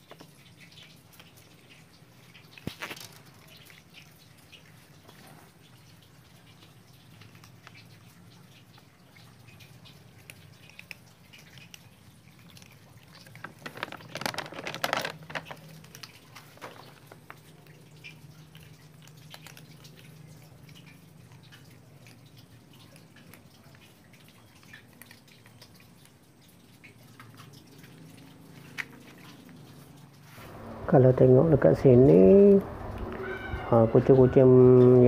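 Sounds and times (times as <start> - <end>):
cats chewing food: 0.0 - 35.0.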